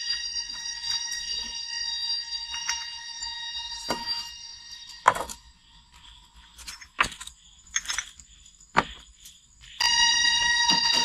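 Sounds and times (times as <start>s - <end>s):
shrill high-pitched whine: 0.0s - 6.0s, 9.8s - 11.0s.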